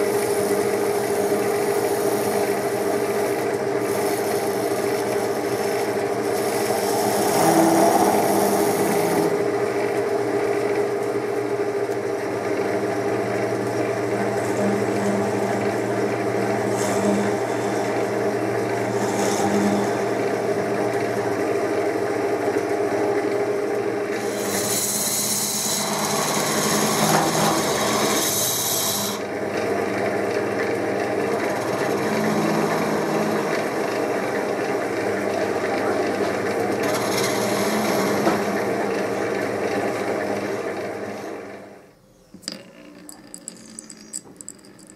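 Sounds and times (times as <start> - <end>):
tool cutting wood scraping hiss: 0.0 - 9.5, 16.7 - 20.3, 24.1 - 29.3, 36.8 - 38.7
lathe motor hum: 0.0 - 43.7.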